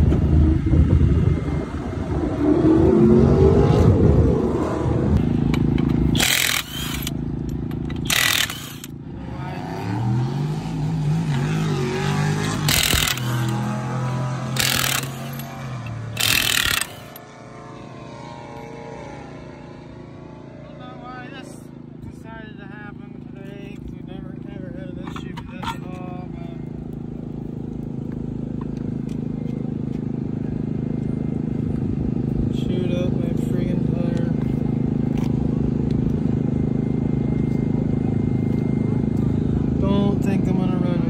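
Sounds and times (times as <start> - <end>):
car engine revving: 8.0 - 23.4.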